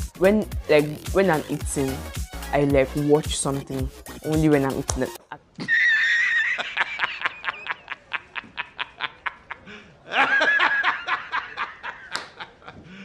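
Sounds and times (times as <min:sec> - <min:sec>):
man laughing hysterically: 0:05.3 - 0:13.0.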